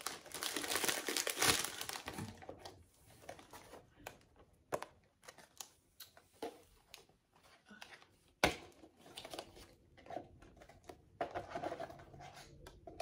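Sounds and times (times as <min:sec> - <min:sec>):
packaging crinkling: 0:00.0 - 0:02.4.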